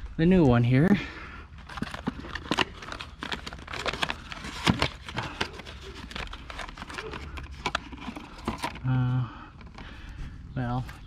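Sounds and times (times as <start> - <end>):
cardboard crinkling and rustling: 1.6 - 8.9.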